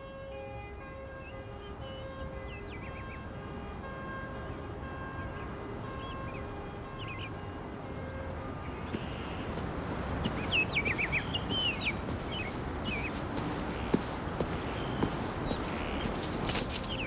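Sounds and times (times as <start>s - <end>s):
bird chirps: 6.0s - 17.0s
pulsing insect trill: 7.0s - 17.0s.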